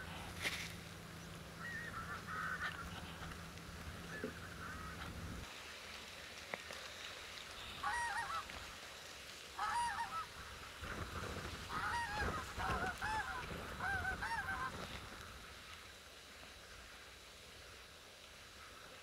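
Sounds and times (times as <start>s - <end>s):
geese honking: 1.5s - 5.4s, 7.6s - 8.6s, 9.6s - 10.4s, 11.6s - 15.2s.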